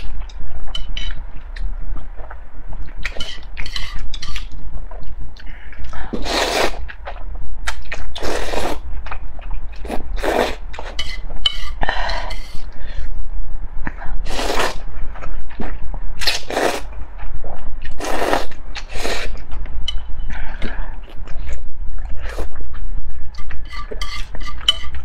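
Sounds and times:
person slurping noodles: 6.2 - 6.8, 8.2 - 8.8, 9.8 - 10.6, 14.2 - 14.8, 16.3 - 16.9, 18.0 - 19.4.

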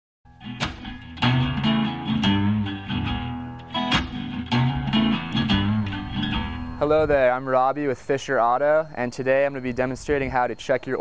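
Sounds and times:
strummed guitar chords: 0.3 - 7.2
held low notes: 0.8 - 10.6.

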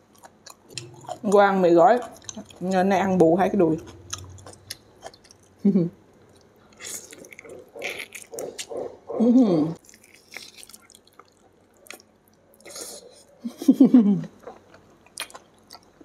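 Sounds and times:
wet chewing and biting: 0.0 - 2.8, 3.7 - 5.5, 6.2 - 9.0, 9.8 - 13.2, 14.4 - 16.0.

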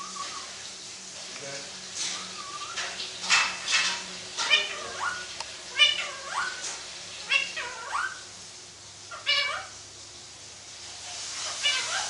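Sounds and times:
parakeet meow-like calls: 0.0 - 0.5, 2.1 - 3.0, 4.4 - 8.3, 9.1 - 9.8, 11.4 - 12.0.

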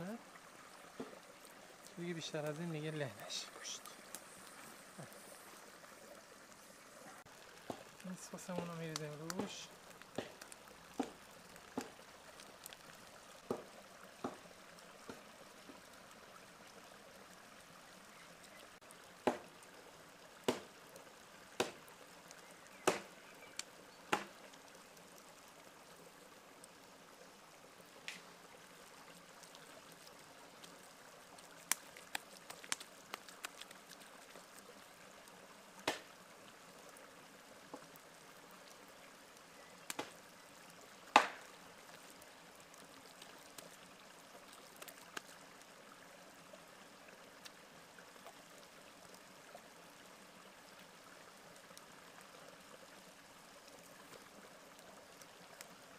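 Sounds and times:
faint steady hiss: 0.0 - 55.9
wet clicks and slaps of hands: 22.9 - 24.4, 31.6 - 33.8, 35.9 - 36.1, 39.9 - 40.2, 41.2 - 41.5.

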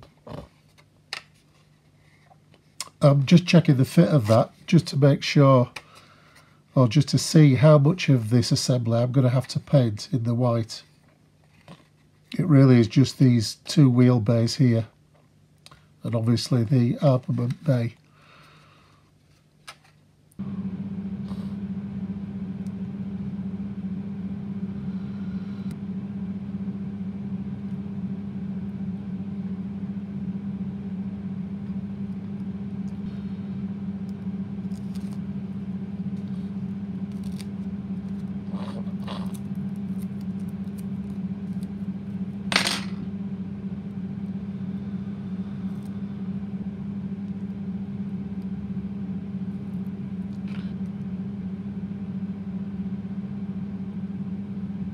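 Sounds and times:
steady machine hum: 1.6 - 19.4, 20.1 - 54.9.

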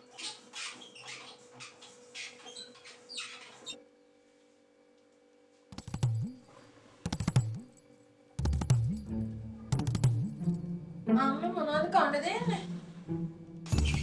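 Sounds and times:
percussive background music: 5.7 - 6.4, 7.1 - 7.8, 8.4 - 11.2, 12.6 - 14.0.

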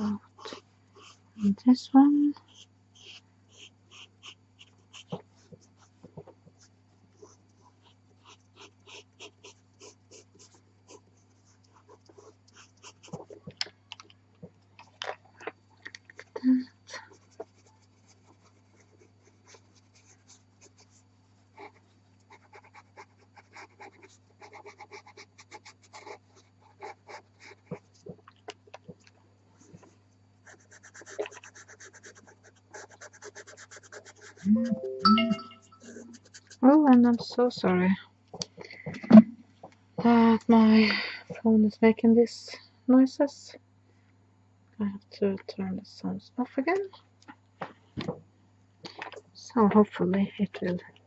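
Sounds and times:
steady low hum: 0.0 - 51.0
pencil scratching on paper: 0.4 - 1.5, 2.4 - 13.4, 17.1 - 28.0, 30.4 - 34.7, 35.7 - 37.3.

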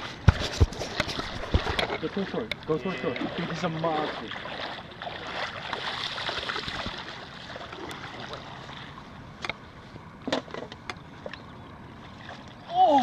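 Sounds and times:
water sloshing and splashing: 0.0 - 13.0
sharp splashes or knocks: 0.2 - 2.2.

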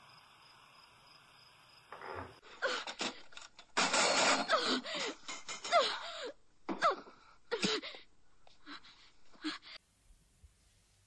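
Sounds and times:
person crying and whimpering: 4.2 - 8.0.

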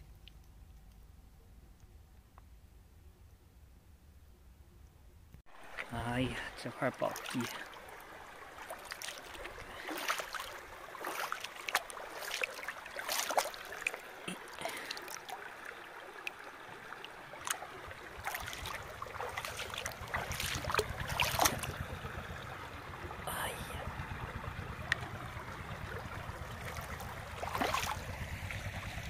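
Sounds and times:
stream water trickling: 0.0 - 2.0, 5.5 - 29.0
low steady rumble: 0.0 - 29.0
hand splashing in water: 8.5 - 21.9, 26.6 - 28.2.

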